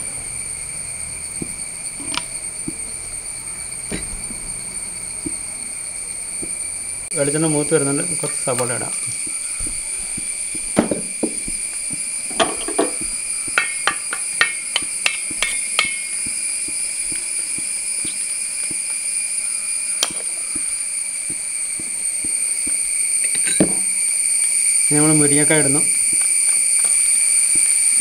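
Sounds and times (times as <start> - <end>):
steady high-pitched whine: 0.0 - 28.0
wooden spatula knocking metal pot: 9.2 - 18.8.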